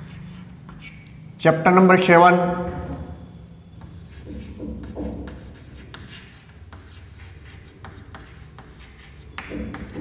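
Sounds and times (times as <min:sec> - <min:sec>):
chalk scratching on chalkboard: 0:00.0 - 0:01.1, 0:03.8 - 0:10.0.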